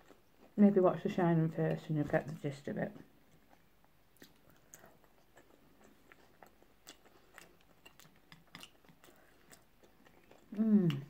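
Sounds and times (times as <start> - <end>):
person chewing: 0.0 - 0.6, 3.2 - 11.0.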